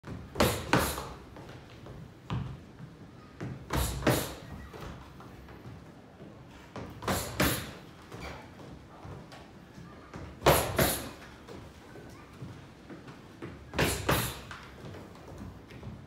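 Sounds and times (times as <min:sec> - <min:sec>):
boxing gloves hitting focus mitts: 0:10.4 - 0:11.2.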